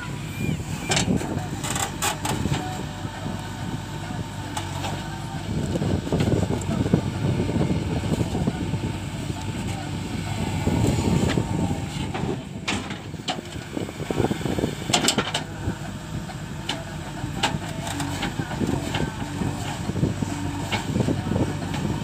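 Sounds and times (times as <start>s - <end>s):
diesel engine under load: 0.0s - 22.0s
backhoe digging soil: 0.7s - 22.0s.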